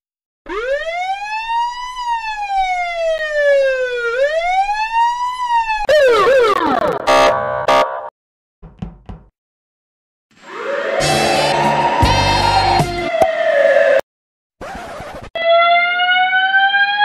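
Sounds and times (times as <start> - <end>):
police siren wailing: 0.5 - 8.0, 10.4 - 14.0, 15.4 - 17.0
siren blare: 0.5 - 8.1, 10.4 - 14.0, 15.4 - 17.0.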